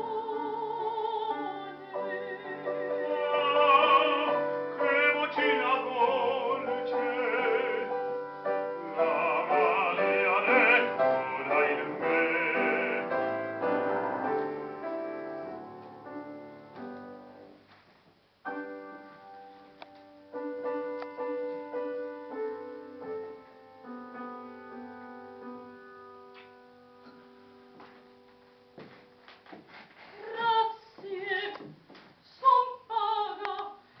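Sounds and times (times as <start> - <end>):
soprano singing with vibrato: 0.0 - 13.4, 30.2 - 33.9
piano accompaniment: 0.0 - 29.6.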